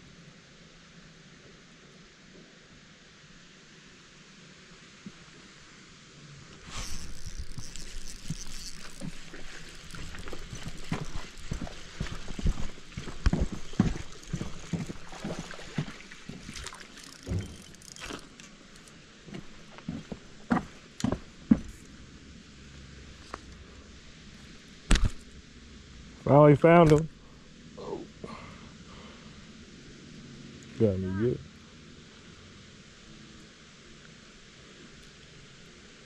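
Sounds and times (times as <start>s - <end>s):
fishing reel reeling: 6.6s - 15.6s, 16.4s - 18.9s.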